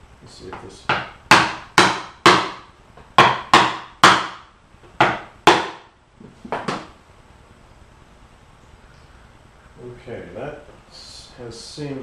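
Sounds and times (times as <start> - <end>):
hammer knocking on wood block: 0.5 - 5.9.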